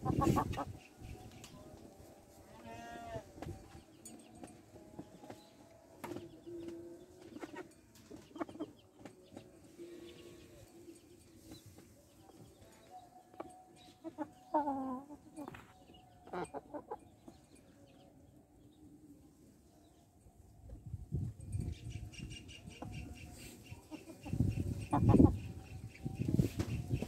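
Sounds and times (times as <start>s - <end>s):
chickens clucking: 0.0s - 1.9s, 6.0s - 12.6s, 13.3s - 17.6s, 21.8s - 27.0s.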